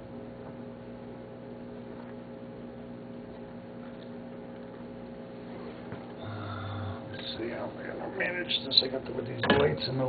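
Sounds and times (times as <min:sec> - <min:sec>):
low electrical hum: 0:00.0 - 0:10.0.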